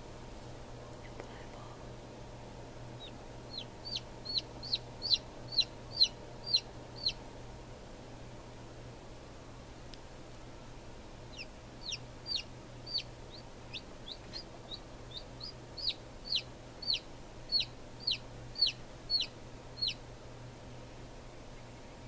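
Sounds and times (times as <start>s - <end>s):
low steady hum: 0.0s - 22.0s
chick peeping: 3.0s - 7.2s, 11.3s - 20.0s.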